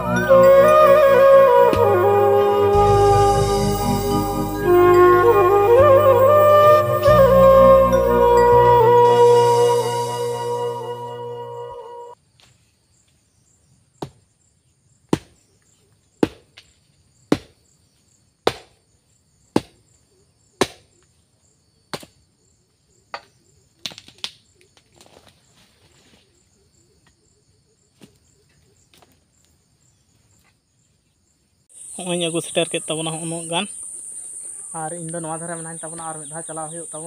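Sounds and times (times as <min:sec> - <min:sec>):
crickets trilling: 0:00.0 - 0:37.0
digging tool striking earth: 0:15.1 - 0:15.4, 0:16.2 - 0:16.7, 0:17.3 - 0:17.6, 0:18.4 - 0:18.8, 0:19.5 - 0:19.8, 0:20.6 - 0:20.9, 0:21.9 - 0:22.2.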